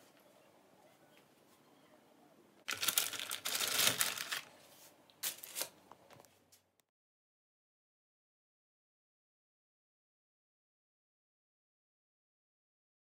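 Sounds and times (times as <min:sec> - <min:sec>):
plastic packaging crinkling: 0:02.6 - 0:04.6, 0:05.2 - 0:05.8.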